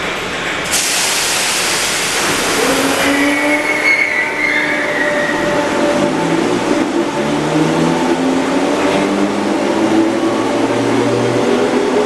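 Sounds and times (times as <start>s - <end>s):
air hiss: 0.7s - 3.4s.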